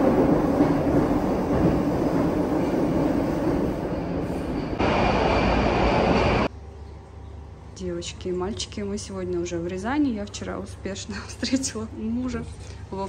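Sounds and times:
train wheels rumbling on track: 0.0s - 6.5s.

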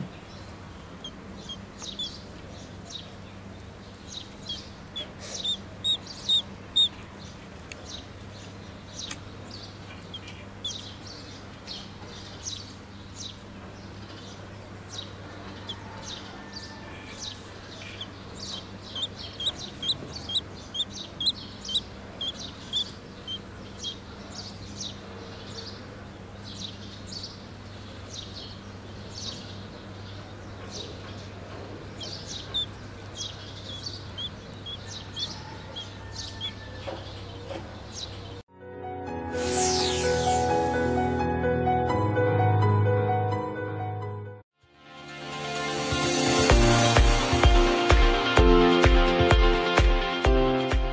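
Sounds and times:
ducklings peeping: 1.0s - 3.1s, 4.0s - 8.1s, 8.9s - 13.4s, 15.0s - 25.8s, 29.2s - 38.4s.

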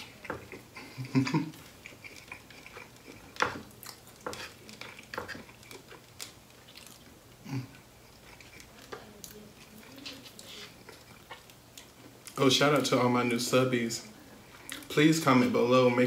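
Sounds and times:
chewing: 0.0s - 13.4s, 14.4s - 15.0s
fork scraping wooden plate: 4.2s - 5.8s.

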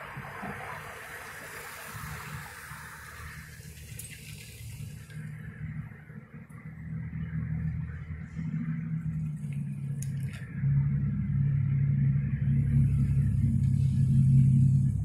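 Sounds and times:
car engines humming: 0.0s - 15.0s
high hiss: 0.8s - 5.3s.

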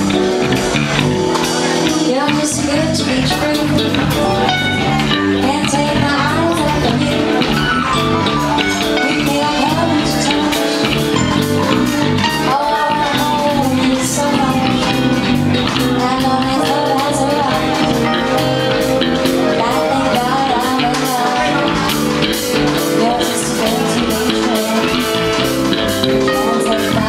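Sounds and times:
live band music: 0.0s - 27.0s
woman singing: 1.8s - 27.0s.

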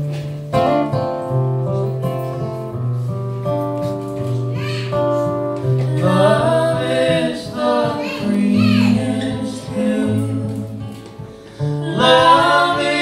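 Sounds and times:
strummed acoustic guitar: 0.0s - 13.0s
woman singing: 5.7s - 11.0s, 11.7s - 13.0s.

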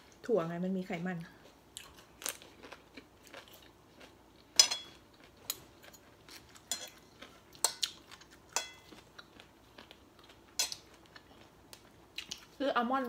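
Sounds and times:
cutlery clinking on plates: 4.6s - 6.1s, 8.5s - 8.9s, 10.6s - 10.9s.

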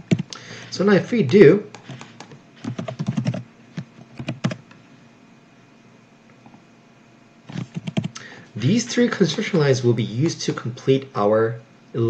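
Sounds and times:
computer keyboard keys clicking: 0.1s - 0.3s, 1.2s - 3.4s, 4.2s - 4.7s, 7.6s - 8.2s.

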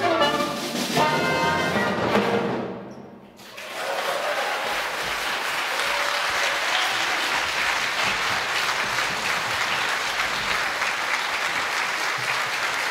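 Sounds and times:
audience applauding: 3.4s - 12.9s.

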